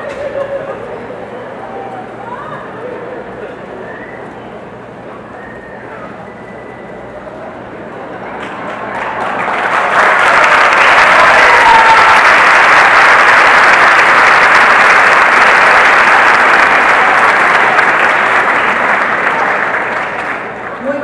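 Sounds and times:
audience applauding: 8.0s - 21.0s.

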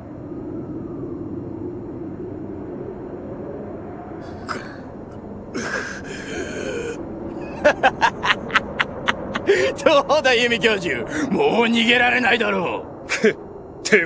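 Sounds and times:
low steady drone: 0.0s - 14.0s
breathy gasp: 5.6s - 7.0s
person's strained cry: 5.6s - 7.7s, 9.4s - 9.8s.

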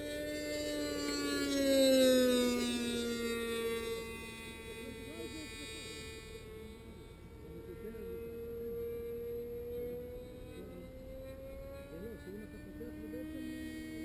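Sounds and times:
lower engine note: 0.0s - 14.0s
model airplane engine whining: 0.0s - 14.0s.

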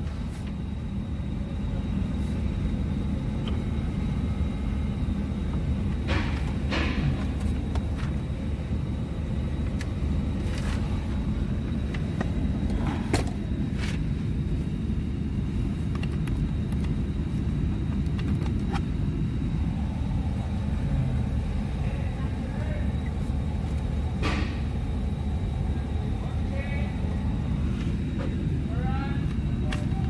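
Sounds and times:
car engine rumble inside cabin: 0.0s - 30.0s.

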